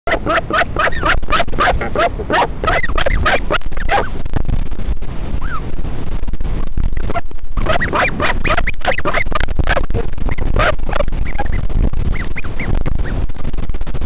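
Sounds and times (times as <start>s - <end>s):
albatross chattering calls: 0.1s - 4.1s, 7.6s - 11.6s
low rumble: 0.2s - 14.0s.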